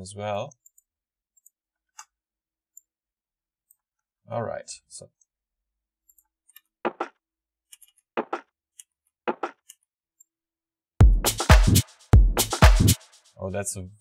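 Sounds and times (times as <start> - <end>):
overdriven electronic percussion hits: 11.0 - 13.2
techno drum groove: 11.0 - 13.4.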